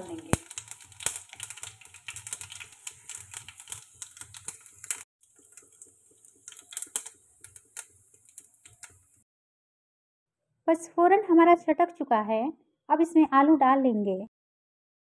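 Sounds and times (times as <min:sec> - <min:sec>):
seeds popping in hot oil: 0:00.0 - 0:09.2.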